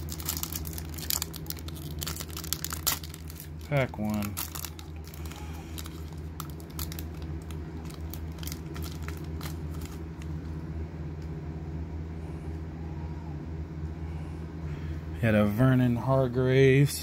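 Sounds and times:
foil pack tearing and crackling: 0:00.0 - 0:10.3
steady low hum: 0:00.0 - 0:17.0.

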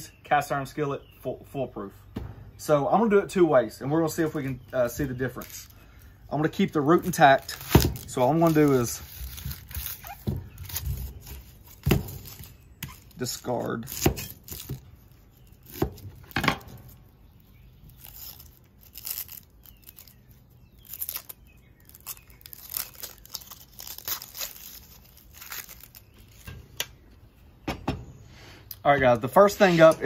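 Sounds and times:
onion skin crackling and tearing: 0:04.2 - 0:27.0.

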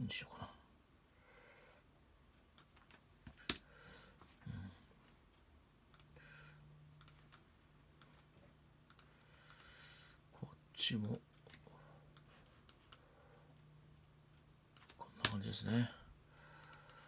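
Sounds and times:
faint low hum: 0:00.0 - 0:17.0
mouse and keyboard clicks: 0:14.7 - 0:15.4.

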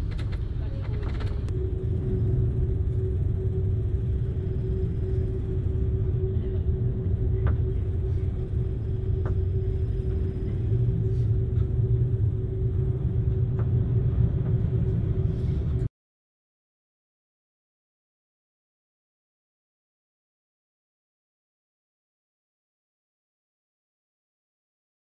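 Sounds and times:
constant hum: 0:00.0 - 0:15.9
machinery low rumble: 0:00.0 - 0:15.9
storm wind: 0:00.0 - 0:15.9.

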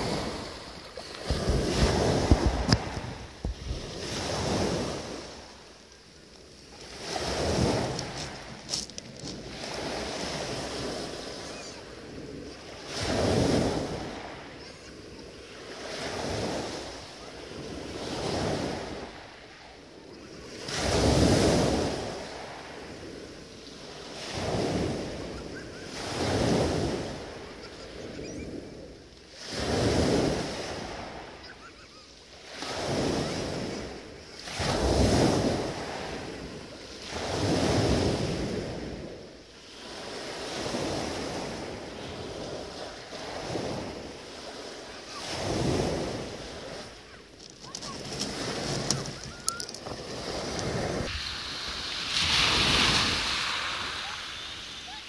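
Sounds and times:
waves washing up pebble beach: 0:00.0 - 0:55.0.

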